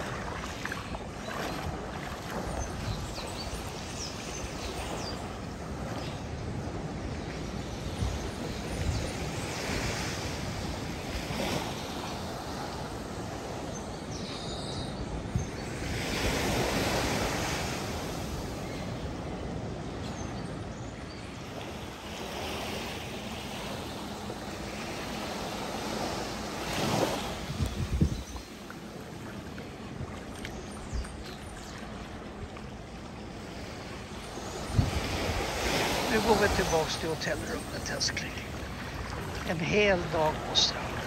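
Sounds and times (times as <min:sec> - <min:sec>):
sea waves breaking on beach: 0:00.0 - 0:41.0.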